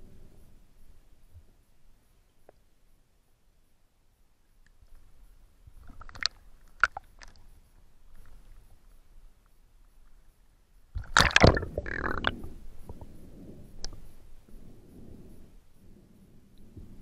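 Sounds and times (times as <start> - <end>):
water splashing: 11.0 - 12.6.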